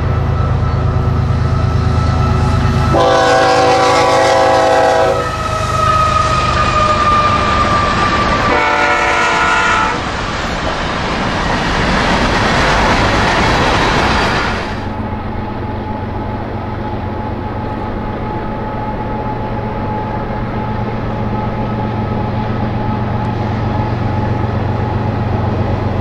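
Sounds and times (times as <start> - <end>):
locomotive engine rumble: 0.0 - 26.0
train wheels on rails: 0.0 - 26.0
locomotive horn: 0.6 - 10.0.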